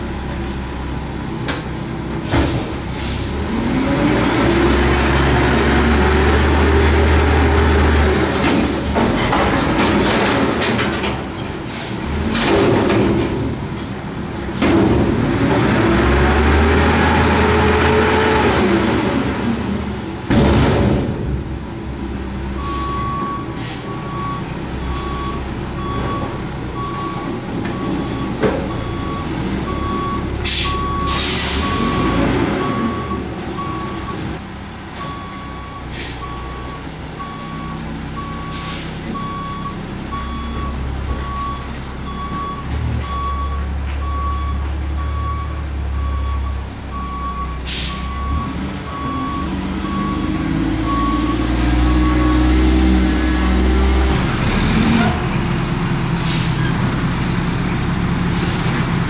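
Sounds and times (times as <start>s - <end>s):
diesel engine rumble: 0.0s - 59.0s
air brakes hissing: 2.3s - 3.4s, 11.7s - 12.1s, 22.6s - 24.1s, 30.4s - 32.1s, 35.8s - 36.4s, 38.4s - 39.2s, 47.6s - 48.2s, 56.1s - 56.8s, 58.3s - 58.9s
truck back-up alarm beeping: 22.5s - 34.3s, 35.0s - 54.0s.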